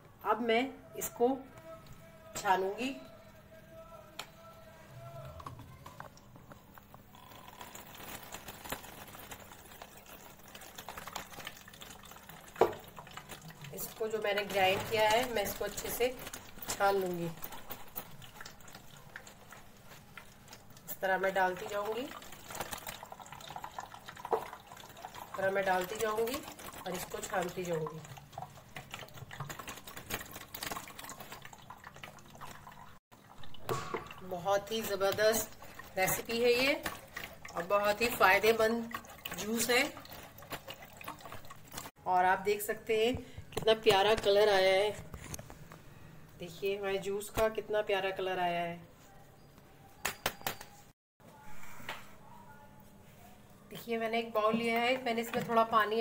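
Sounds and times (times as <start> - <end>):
juice dripping into jar: 5.2 - 41.9.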